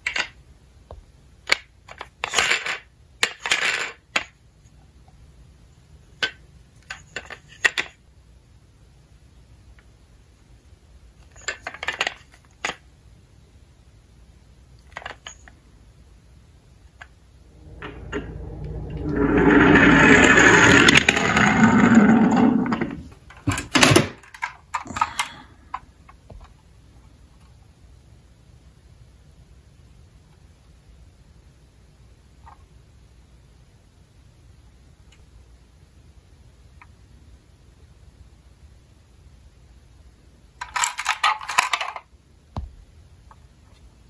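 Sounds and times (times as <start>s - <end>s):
toy car rolling down slope: 17.6s - 25.3s
plastic toys clicking: 40.6s - 42.0s.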